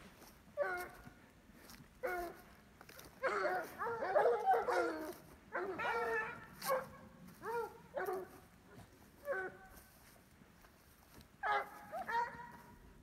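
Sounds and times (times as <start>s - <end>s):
dogs yelping and baying: 0.6s - 1.1s, 2.0s - 2.4s, 3.0s - 9.8s, 11.4s - 12.8s.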